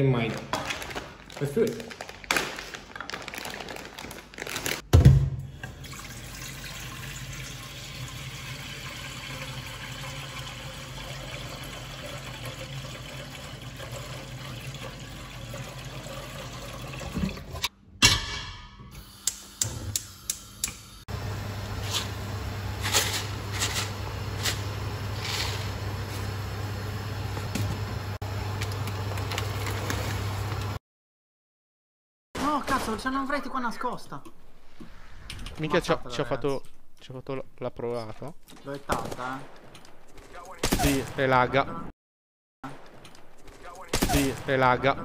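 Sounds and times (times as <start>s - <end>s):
tap water filling metal pot: 5.6s - 17.6s
low stove hum: 18.9s - 30.8s.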